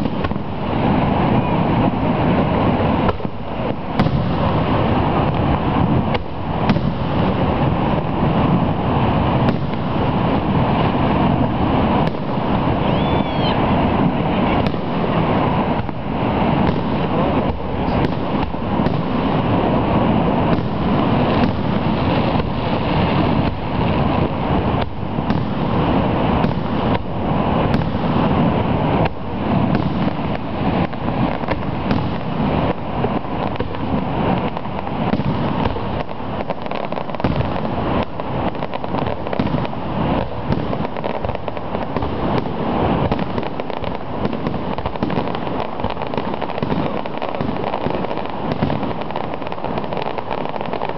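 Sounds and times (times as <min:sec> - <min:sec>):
faint firework whistle: 0:00.0 - 0:07.5, 0:11.4 - 0:19.4
fireworks popping: 0:00.0 - 0:50.9
steady rushing roar: 0:00.0 - 0:50.9.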